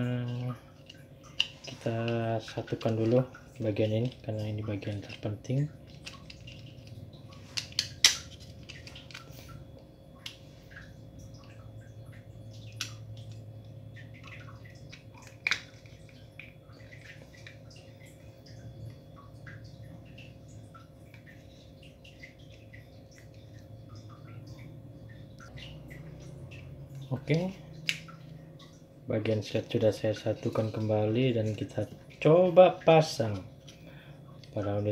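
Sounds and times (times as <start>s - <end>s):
faint steady hum: 0.0s - 34.9s
plastic parts clicking together: 5.9s - 9.4s, 14.9s - 16.5s.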